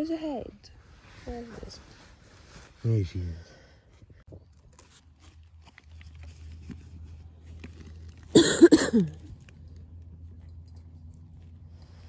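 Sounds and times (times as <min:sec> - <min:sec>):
small rustles: 0:00.5 - 0:03.3, 0:04.1 - 0:08.4
person coughing: 0:08.3 - 0:09.2.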